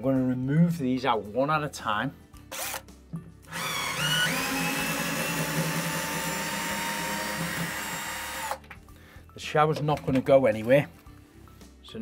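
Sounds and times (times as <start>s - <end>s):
cordless drill motor whining: 2.5s - 2.8s, 3.5s - 8.6s.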